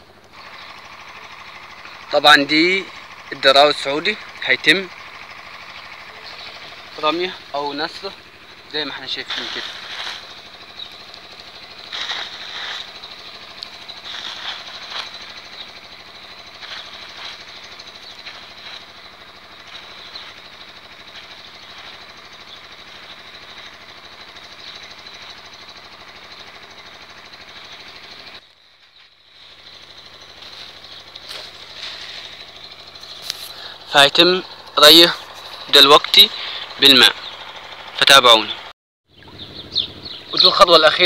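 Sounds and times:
small engine running with whine: 0:00.0 - 0:41.0
scratchy rustles: 0:09.2 - 0:10.5, 0:11.7 - 0:15.6, 0:16.4 - 0:19.0, 0:29.3 - 0:33.8.

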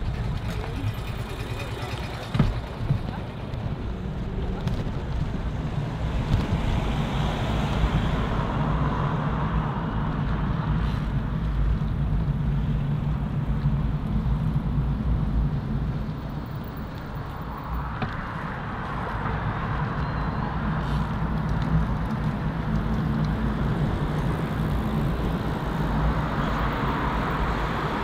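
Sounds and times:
traffic rumble: 0:00.0 - 0:28.0
passing vehicle hiss: 0:10.7 - 0:11.3, 0:20.6 - 0:21.4.

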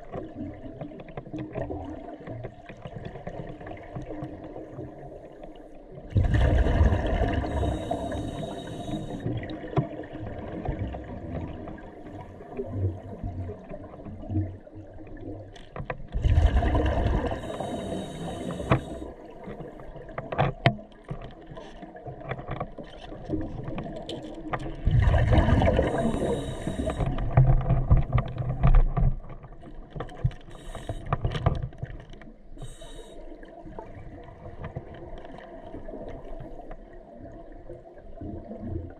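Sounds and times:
exhaled bubbles rumbling: 0:00.0 - 0:22.2, 0:22.8 - 0:32.8, 0:33.4 - 0:38.9
regulator hiss: 0:07.4 - 0:09.3, 0:17.2 - 0:19.1, 0:25.8 - 0:27.1, 0:30.6 - 0:31.1, 0:32.6 - 0:33.2
diving gear clicks and knocks: 0:15.5 - 0:32.8.

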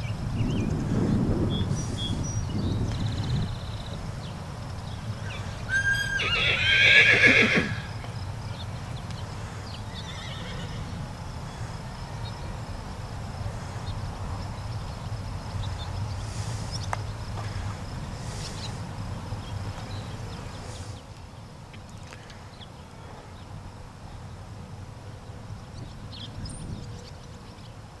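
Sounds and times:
horse whinnying: 0:05.3 - 0:08.0, 0:10.0 - 0:10.8.

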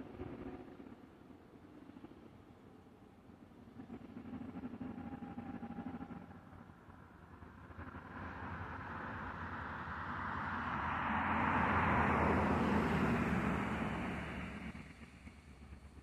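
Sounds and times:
vehicle passing by: 0:08.2 - 0:14.8.

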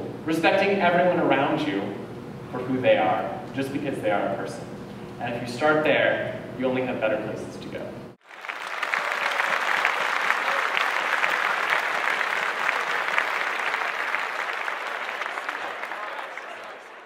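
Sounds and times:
audience applauding: 0:08.2 - 0:17.0.

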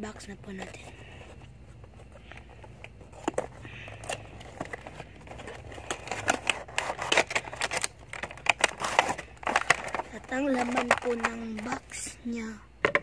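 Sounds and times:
cardboard and paper rustling: 0:00.1 - 0:12.2.

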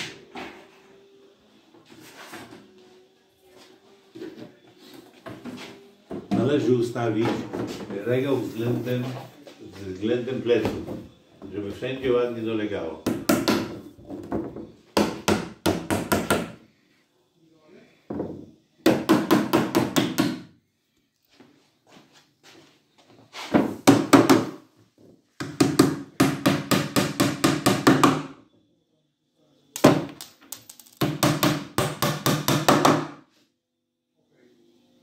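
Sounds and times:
hammer tapping nails: 0:18.9 - 0:20.5, 0:25.4 - 0:28.3, 0:29.8 - 0:33.2.

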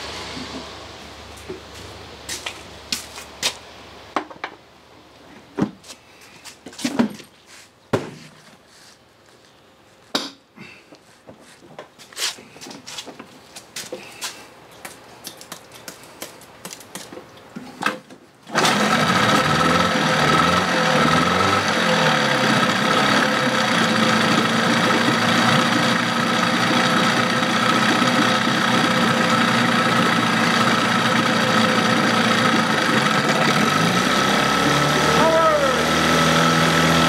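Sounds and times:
outboard motor running: 0:18.6 - 0:37.0.

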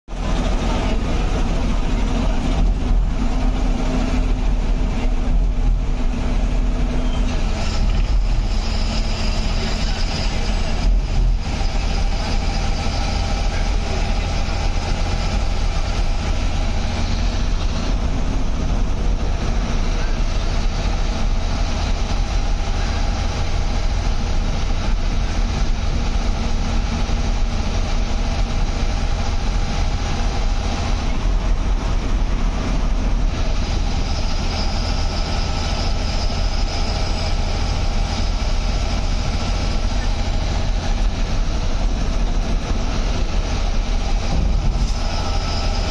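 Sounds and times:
bus engine and road noise: 0:00.0 - 0:45.9.

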